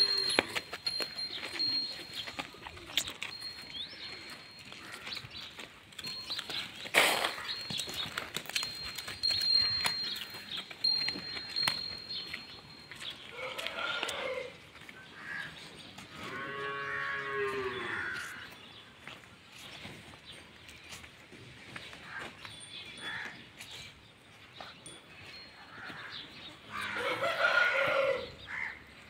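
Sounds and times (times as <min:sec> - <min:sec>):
cow mooing: 0:16.1 - 0:18.4.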